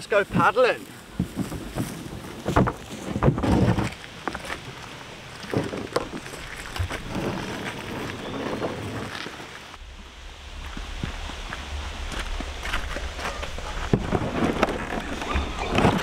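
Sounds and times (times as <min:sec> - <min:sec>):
knocks and scrapes of kayak: 0:01.2 - 0:04.6, 0:05.4 - 0:09.7, 0:12.6 - 0:16.0.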